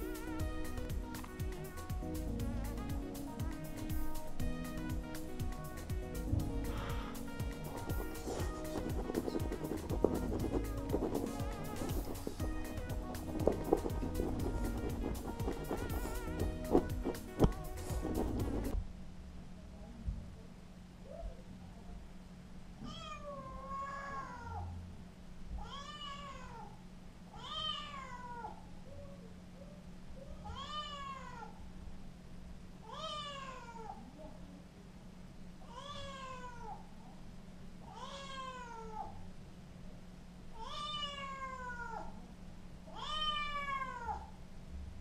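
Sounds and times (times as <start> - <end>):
steady low hum: 0.0 - 43.1
kitten meowing: 42.9 - 44.2.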